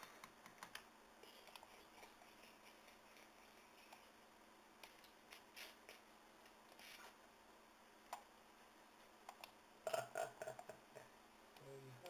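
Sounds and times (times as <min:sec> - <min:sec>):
computer mouse clicks: 0:00.0 - 0:02.4, 0:04.8 - 0:05.4, 0:08.1 - 0:08.3, 0:09.2 - 0:09.6
soft rustles: 0:06.7 - 0:07.2.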